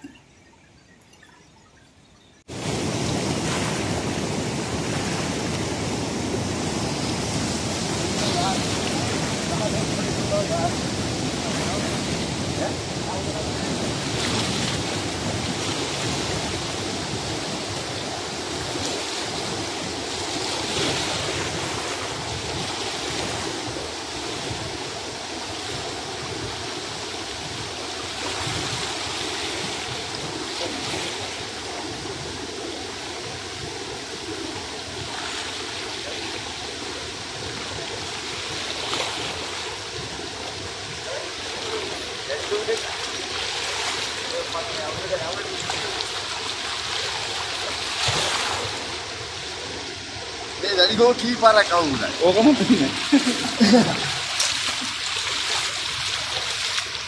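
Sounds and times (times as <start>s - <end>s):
river water rushing over rapids: 2.5s - 57.0s.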